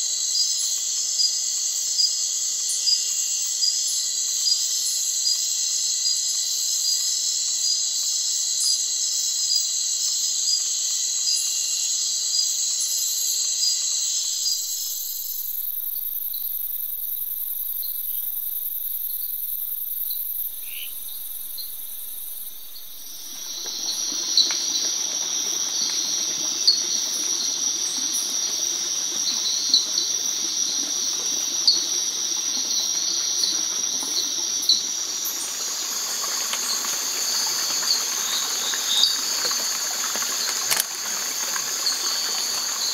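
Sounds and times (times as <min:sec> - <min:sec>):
crickets trilling: 0:00.0 - 0:42.9
sharp insect chirps: 0:10.8 - 0:31.8, 0:32.6 - 0:42.9.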